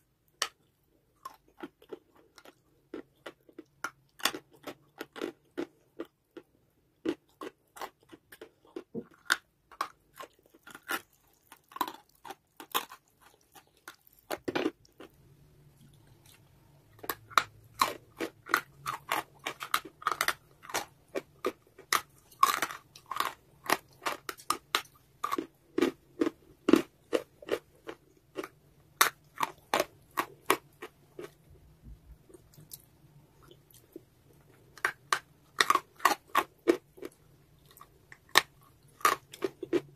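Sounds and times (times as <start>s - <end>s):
chalk crunching while chewed: 15.8s - 31.4s, 32.3s - 39.9s.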